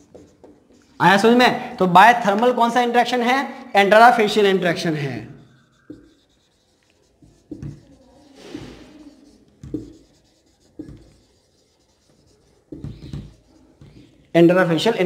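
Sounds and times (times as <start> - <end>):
marker pen writing on whiteboard: 0.0 - 1.4, 4.2 - 15.0.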